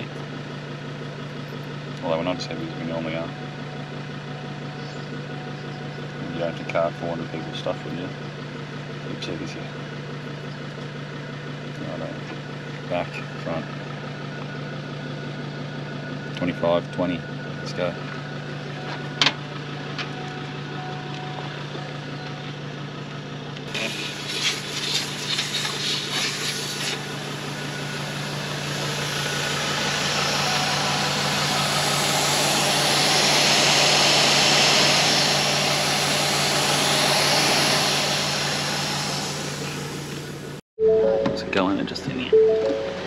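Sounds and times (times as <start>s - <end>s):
engine hum: 0.0s - 43.0s
air hissing out of tyre: 23.7s - 40.4s.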